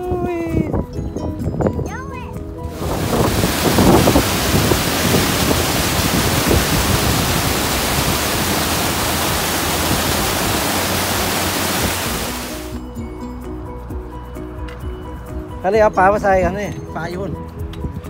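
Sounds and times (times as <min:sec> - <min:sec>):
water splashing over rocks: 0:02.8 - 0:12.8.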